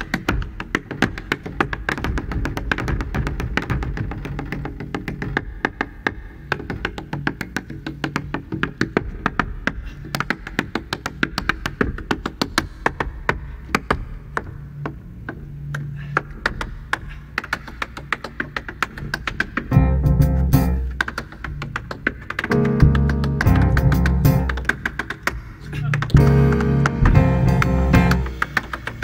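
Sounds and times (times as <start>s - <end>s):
tap shoes on wooden board: 0.0s - 29.0s
jazz trio playing: 19.7s - 21.0s, 22.5s - 24.8s, 26.1s - 28.6s
upright bass low notes: 19.8s - 20.9s, 22.5s - 24.7s, 26.1s - 28.4s.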